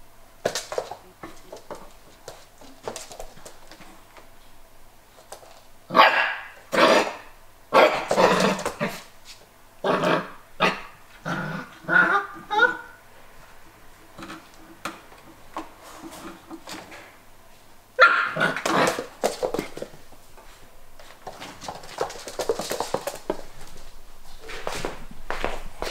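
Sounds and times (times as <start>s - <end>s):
puppy yipping and barking: 18.0s - 18.5s.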